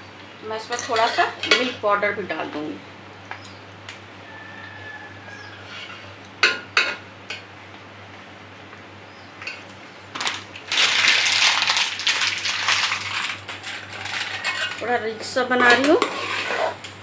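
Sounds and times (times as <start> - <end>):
ladle scraping while stirring pot: 13.2 - 14.8, 15.5 - 16.9.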